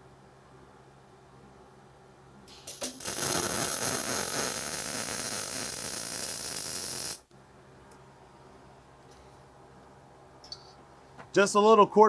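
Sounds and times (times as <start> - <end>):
welding arc: 2.5 - 7.3.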